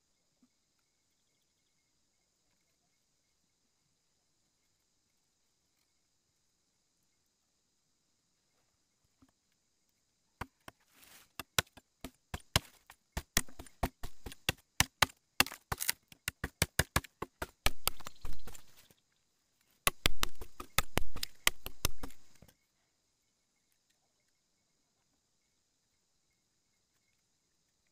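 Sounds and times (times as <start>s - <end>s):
machete chopping bamboo: 11.4s - 18.8s, 19.8s - 22.5s.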